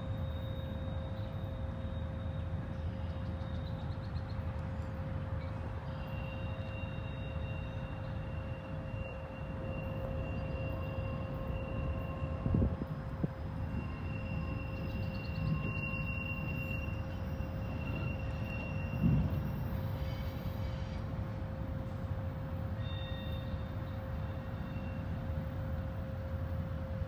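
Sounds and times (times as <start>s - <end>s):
freight train rumble: 0.0s - 27.0s.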